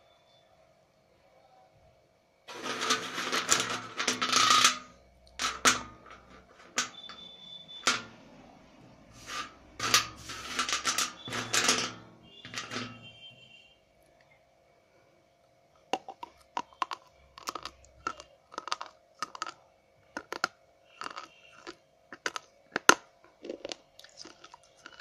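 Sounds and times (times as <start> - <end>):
crunching while chewing: 16.0 - 25.0.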